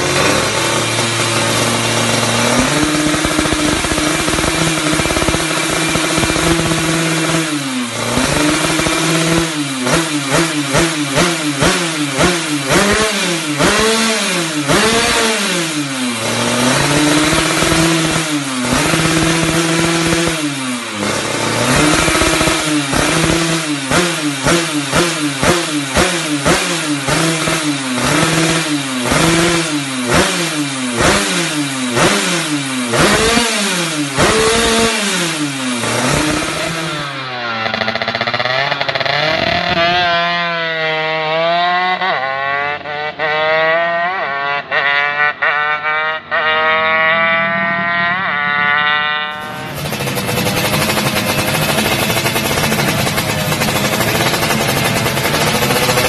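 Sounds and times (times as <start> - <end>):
engine fast idle: 0.0 - 9.5, 49.4 - 56.0
two-stroke engine revving: 0.0 - 56.0.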